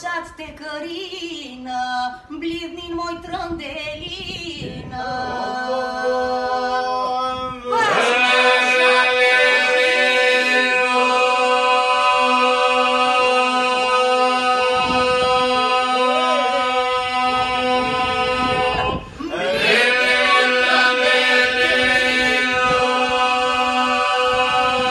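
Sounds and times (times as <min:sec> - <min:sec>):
group singing a cappella: 0:04.6 - 0:24.9.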